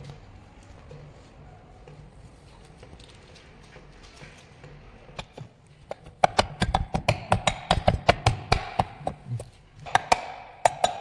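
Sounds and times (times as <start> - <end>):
mallet knocking on metal: 5.9 - 11.0.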